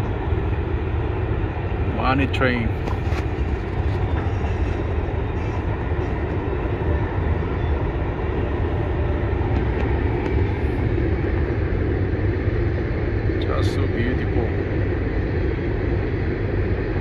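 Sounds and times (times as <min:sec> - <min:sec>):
freight train rumbling past: 0:00.0 - 0:17.0.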